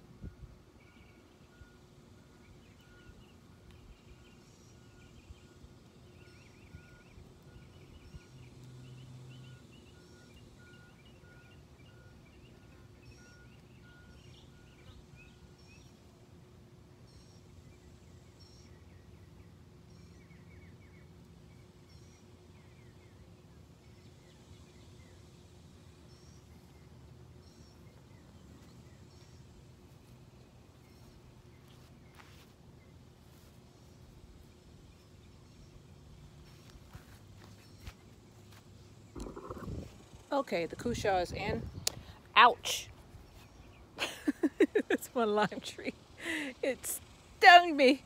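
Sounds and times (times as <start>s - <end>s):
small birds chirping: 2.4s - 16.1s, 17.0s - 48.0s
low hum: 22.4s - 43.7s.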